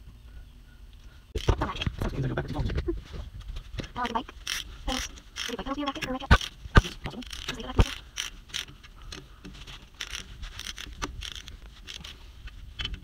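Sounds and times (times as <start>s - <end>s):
gloves rustling against metal: 1.2s - 13.0s
ratchet wrench clicking: 4.3s - 9.3s, 9.9s - 12.2s.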